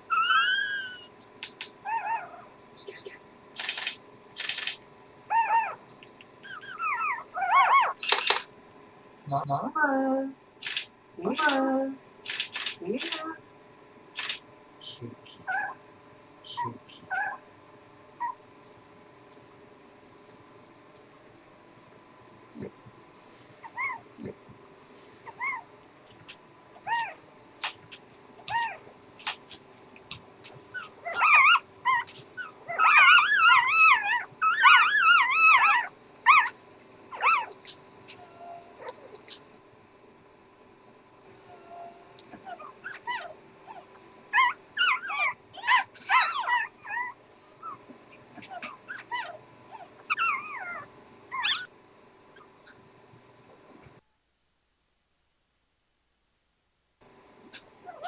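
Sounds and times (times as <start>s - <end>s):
puppies squeaking: 0.1s - 1.1s, 6.4s - 8.0s, 28.5s - 29.4s, 30.7s - 39.0s, 44.4s - 47.8s, 48.4s - 51.7s
sharp clicks: 3.6s - 4.8s, 10.6s - 11.6s, 12.2s - 13.2s, 14.2s - 14.4s.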